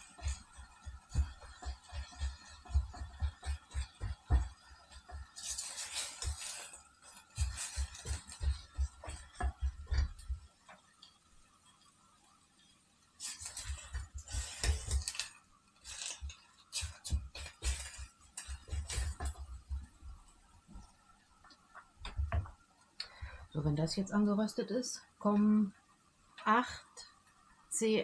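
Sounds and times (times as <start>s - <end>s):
utensil scraping cast-iron pot: 0.0s - 20.9s.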